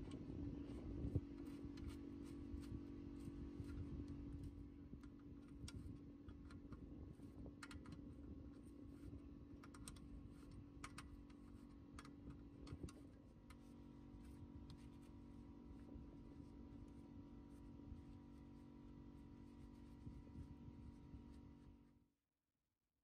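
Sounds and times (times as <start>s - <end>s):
faint low hum: 0.0s - 22.0s.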